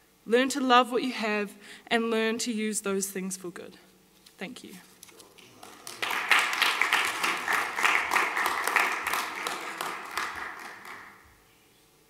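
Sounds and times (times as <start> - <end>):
audience applauding: 5.3 - 11.2.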